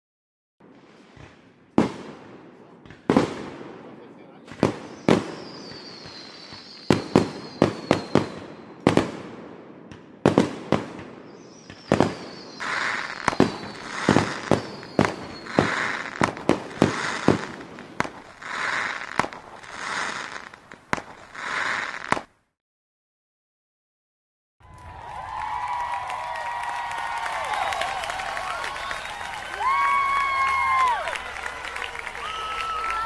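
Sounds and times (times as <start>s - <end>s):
fireworks bangs: 0.6s - 22.4s
fireworks whistles falling in pitch: 4.5s - 9.2s, 10.4s - 22.3s, 27.2s - 31.3s
short hissing noises: 11.6s - 16.2s, 16.8s - 22.3s.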